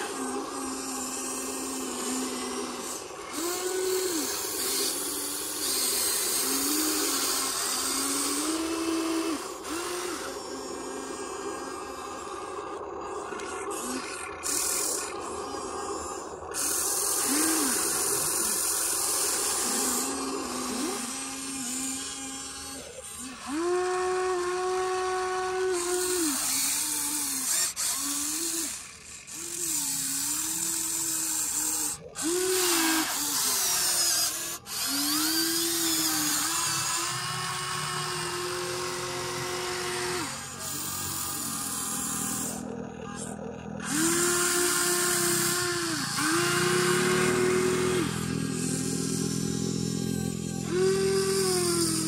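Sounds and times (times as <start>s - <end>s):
toy excavator motors whining: 0.0s - 52.0s.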